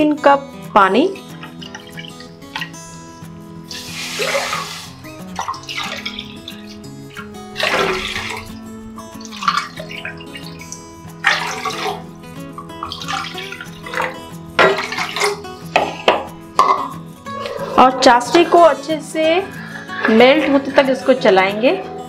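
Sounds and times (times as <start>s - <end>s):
instrumental background music: 0.0s - 22.0s
water pouring into a wok: 3.7s - 7.0s, 7.6s - 12.1s, 12.7s - 15.5s.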